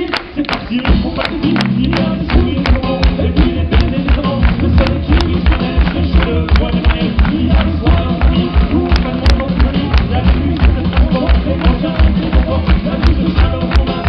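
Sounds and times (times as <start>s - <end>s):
live band playing upbeat music: 0.0s - 14.0s.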